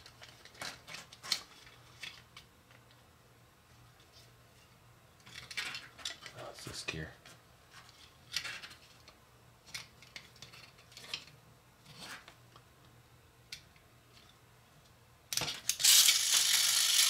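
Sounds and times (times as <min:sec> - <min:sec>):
plastic toy parts clicking: 0:15.3 - 0:17.0.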